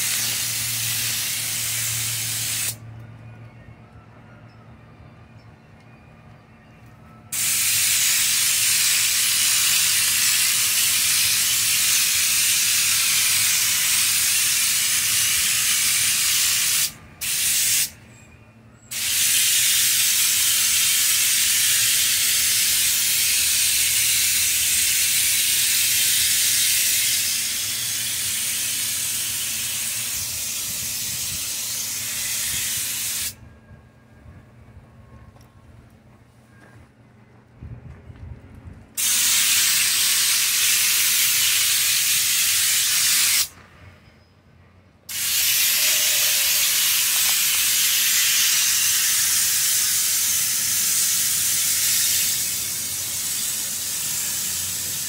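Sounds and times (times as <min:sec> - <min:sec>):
spray gun hissing: 0:00.0 - 0:02.8, 0:07.4 - 0:17.9, 0:18.9 - 0:33.4, 0:39.0 - 0:43.5, 0:45.1 - 0:55.0.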